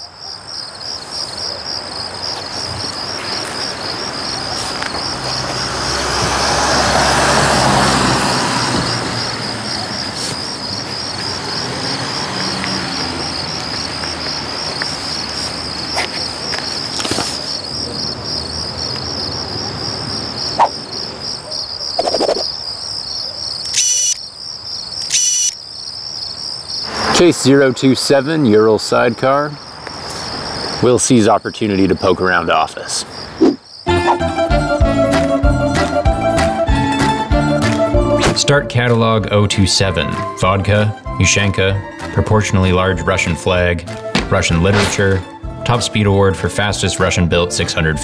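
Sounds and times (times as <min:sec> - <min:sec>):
crickets chirping: 0:00.0 - 0:35.9
sharp clicks: 0:23.6 - 0:24.2, 0:25.0 - 0:25.6.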